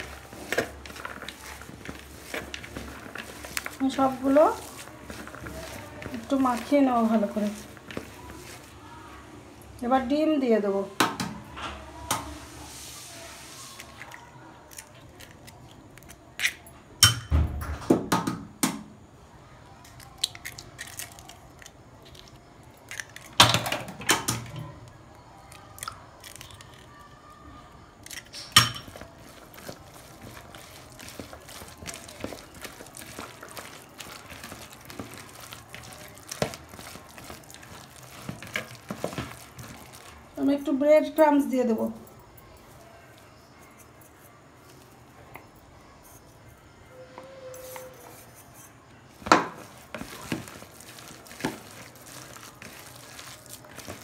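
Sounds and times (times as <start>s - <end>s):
hand squelching filling: 0.0s - 8.8s, 28.8s - 40.3s, 49.6s - 54.0s.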